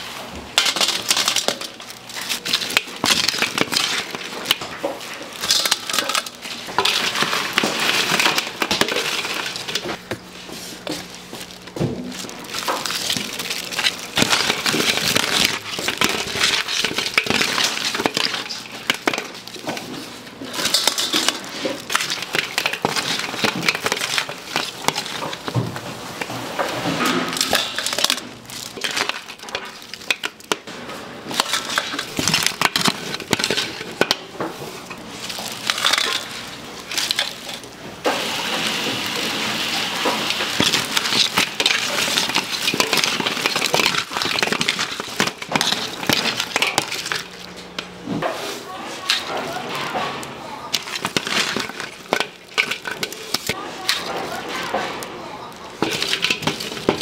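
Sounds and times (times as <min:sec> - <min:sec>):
crab shells clattering: 0:00.6 - 0:10.0, 0:10.9 - 0:37.8, 0:38.5 - 0:47.9, 0:49.0 - 0:57.0.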